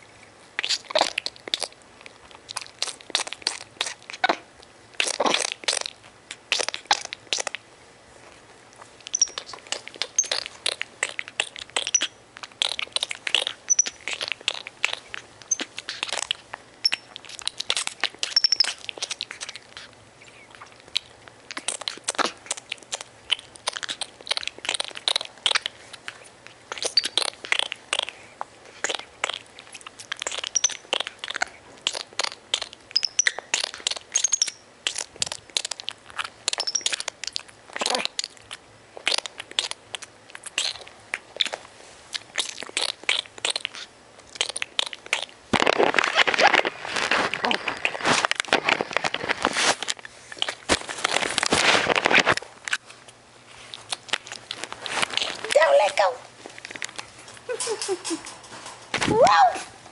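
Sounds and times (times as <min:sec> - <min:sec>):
high-pitched monkey peeps: 0:00.6 - 0:01.8, 0:02.5 - 0:07.6, 0:09.0 - 0:45.4, 0:57.4 - 0:58.4
monkey nibbling denim: 0:00.6 - 0:07.6, 0:08.8 - 0:59.0.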